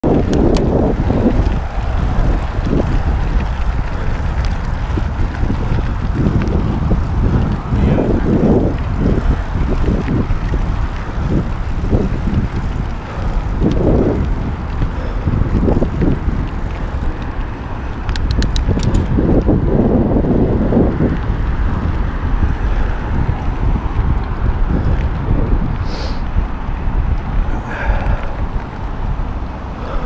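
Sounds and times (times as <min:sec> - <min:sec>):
wind buffeting microphone: 0:00.0 - 0:30.0
tyres rolling over dirt: 0:00.1 - 0:30.0
sharp ticks: 0:00.2 - 0:07.7, 0:08.4 - 0:19.5.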